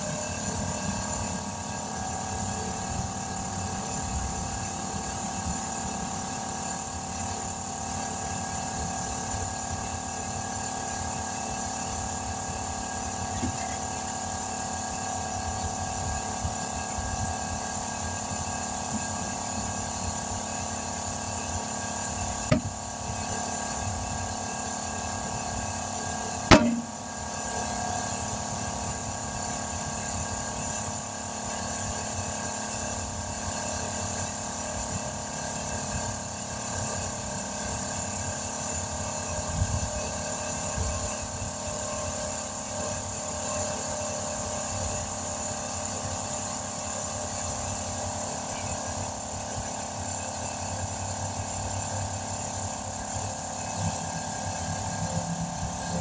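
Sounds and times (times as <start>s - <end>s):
tire beads popping onto rim: 26.5s - 27.0s.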